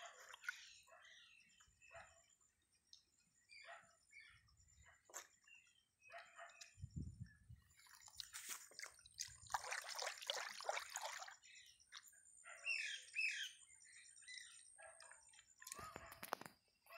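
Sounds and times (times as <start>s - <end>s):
liquid splashing in a bucket: 7.7s - 12.1s.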